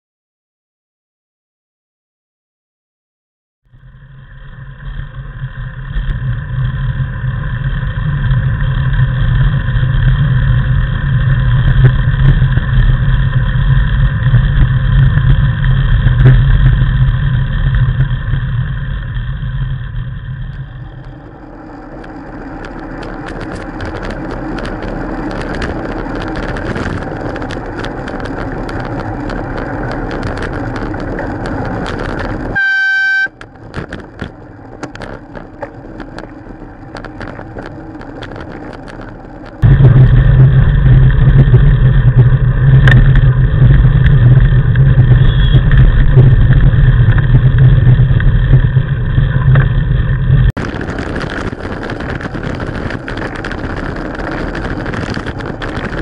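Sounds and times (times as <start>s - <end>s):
wind and road noise: 3.7s - 56.0s
wind buffeting microphone: 20.7s - 32.6s, 33.3s - 56.0s
car horn: 32.4s - 33.4s, 45.2s - 45.7s.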